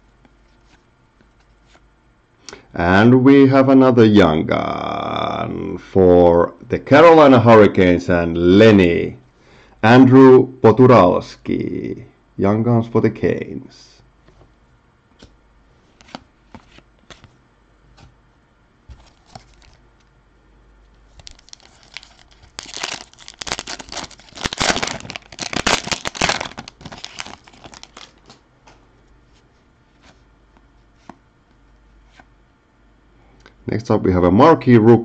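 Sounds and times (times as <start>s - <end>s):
foil wrapper tearing and crinkling: 21.1s - 28.4s.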